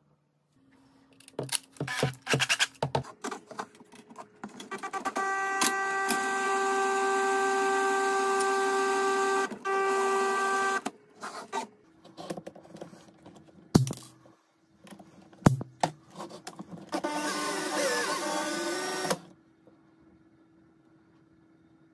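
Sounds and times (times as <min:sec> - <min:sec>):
cordless drill motor running: 0:05.2 - 0:10.9, 0:17.0 - 0:19.3.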